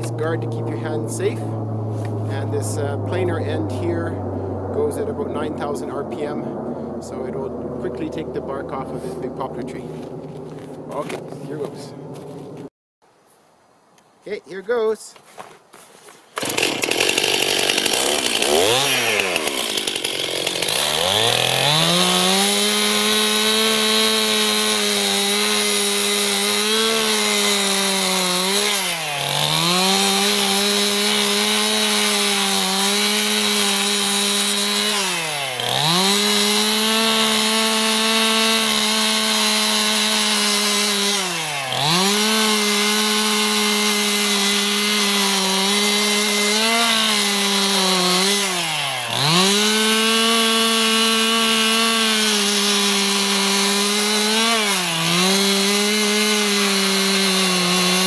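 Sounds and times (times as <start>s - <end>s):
planer stripping bark from log: 16.0s - 58.0s
chainsaw engine revving: 16.4s - 58.0s.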